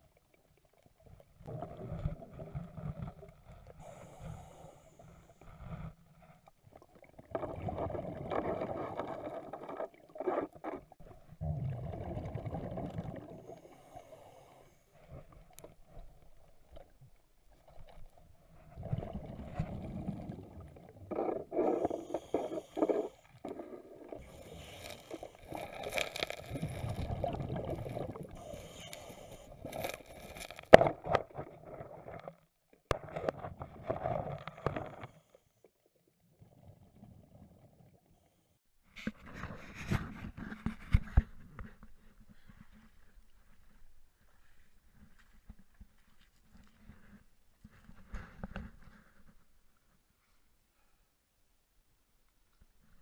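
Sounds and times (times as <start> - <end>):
exhaled air bubbling: 1.0 - 14.6, 17.6 - 32.3
regulator hiss on inhale: 3.8 - 5.9, 13.5 - 15.2, 21.7 - 23.3, 24.2 - 25.8, 28.4 - 30.0.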